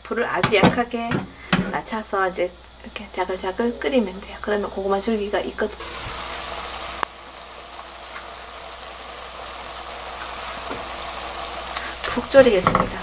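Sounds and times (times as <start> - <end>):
sauce bubbling and sizzling in a wok: 5.4 - 13.0.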